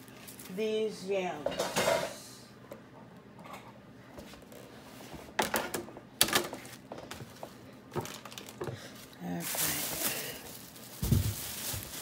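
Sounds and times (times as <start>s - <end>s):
kitchen items knocking and clicking: 1.4s - 2.2s, 5.4s - 8.9s, 10.9s - 12.0s.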